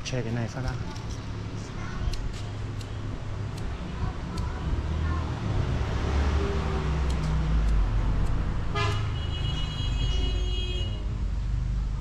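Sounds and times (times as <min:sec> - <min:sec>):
road vehicle rumble: 0:00.0 - 0:12.0.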